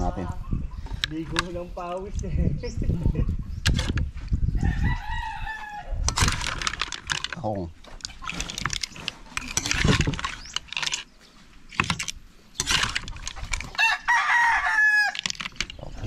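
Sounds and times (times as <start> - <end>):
rooster crowing: 4.6 - 6.0, 13.8 - 15.3
clattering and rustling: 6.1 - 14.2, 15.1 - 16.0.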